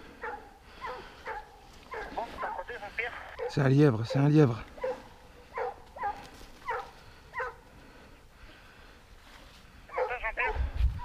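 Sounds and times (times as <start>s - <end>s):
dog yelping: 0.2s - 2.6s, 4.8s - 7.6s, 9.9s - 10.6s.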